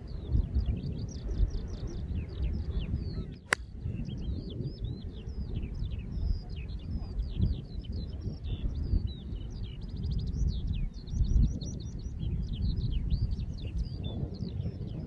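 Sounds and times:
birds chirping: 0.0s - 15.0s
wind buffeting microphone: 0.0s - 15.0s
golf club striking ball: 3.5s - 3.8s.

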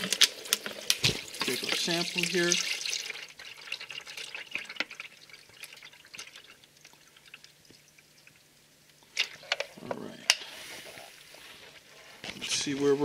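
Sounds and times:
fluid pouring into container: 0.0s - 8.4s.

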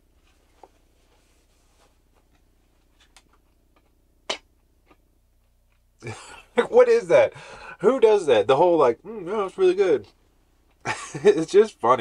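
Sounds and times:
person chewing and smacking: 2.3s - 6.0s.

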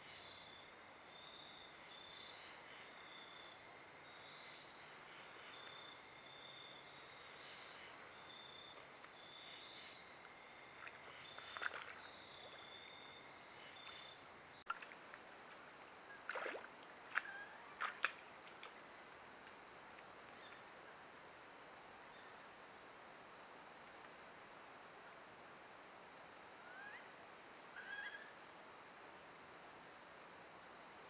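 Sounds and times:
insects chirping: 0.0s - 31.0s
water splashing: 10.8s - 12.6s, 14.7s - 15.2s, 16.2s - 18.7s.

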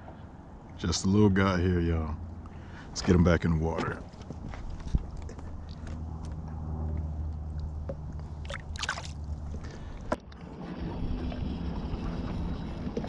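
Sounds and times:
boat motor humming: 4.3s - 13.0s.

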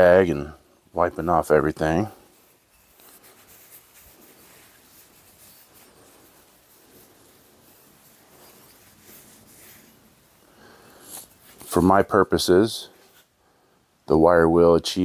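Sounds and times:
cloth rubbing steel axe head: 1.0s - 12.1s.

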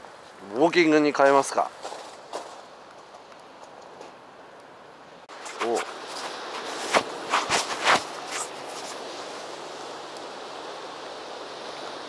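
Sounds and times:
wind: 0.0s - 12.0s
sea surf: 5.2s - 12.0s.

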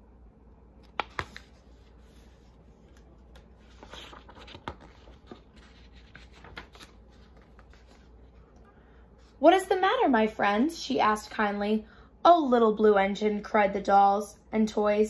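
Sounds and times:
paper rustling: 0.9s - 8.6s.

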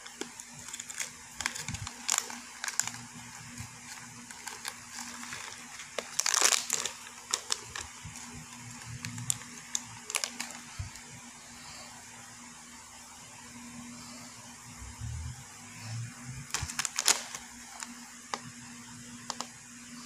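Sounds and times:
capsules being shaken: 0.0s - 11.0s
plastic pouch crinkling: 0.0s - 11.1s, 16.5s - 18.5s.

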